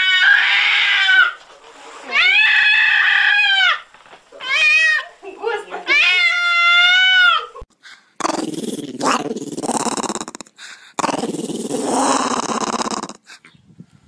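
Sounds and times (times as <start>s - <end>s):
small dog growling: 8.2s - 13.3s.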